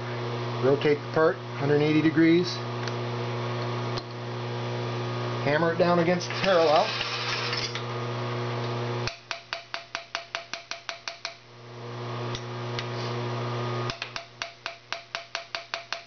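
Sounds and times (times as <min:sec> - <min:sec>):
steady low hum: 0:00.0 - 0:16.0
rapid hammer taps on metal: 0:09.1 - 0:11.4, 0:13.9 - 0:16.0.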